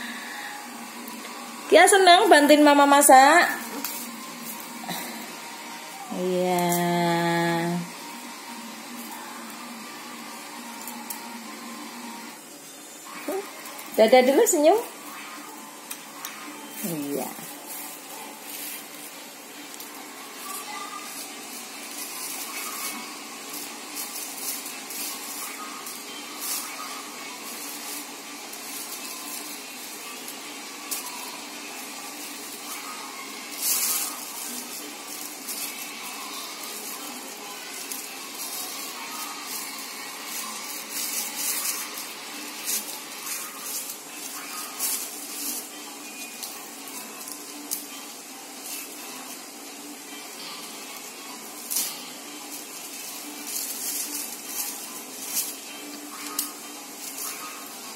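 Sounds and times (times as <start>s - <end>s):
steady background noise: 0.0s - 57.9s
plastic bags rustling: 13.1s - 57.9s.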